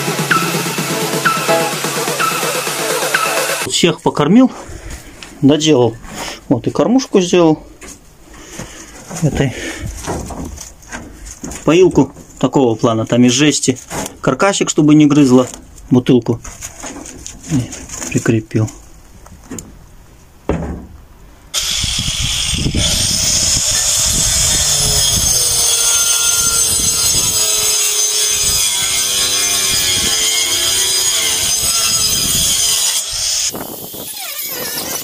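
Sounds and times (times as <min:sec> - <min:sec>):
power tool cutting wood: 0:21.6 - 0:35.0.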